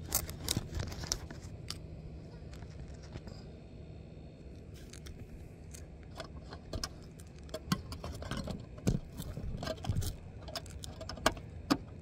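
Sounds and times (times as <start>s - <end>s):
metallic clicks knocks and scrapes: 4.8s - 12.0s.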